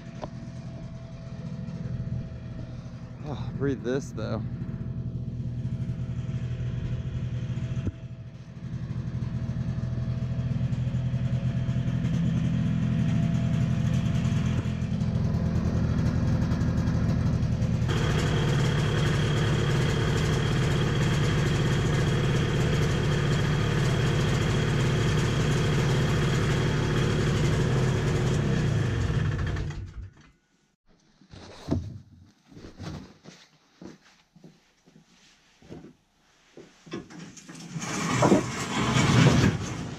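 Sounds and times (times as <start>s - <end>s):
snowmobile engine idling: 0.0s - 29.7s.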